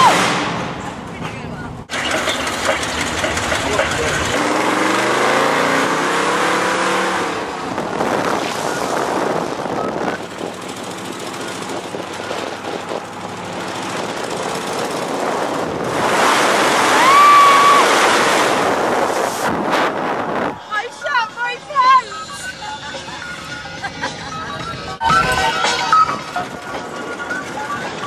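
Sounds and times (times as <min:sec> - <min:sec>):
car engine accelerating: 0:01.9 - 0:20.7
brief high-pitched tone: 0:24.4 - 0:26.5.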